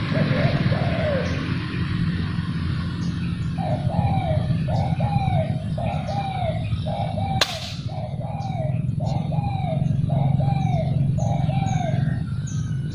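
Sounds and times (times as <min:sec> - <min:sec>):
dove cooing: 0:00.0 - 0:01.8, 0:03.4 - 0:12.9
air rifle shot: 0:07.4 - 0:08.0.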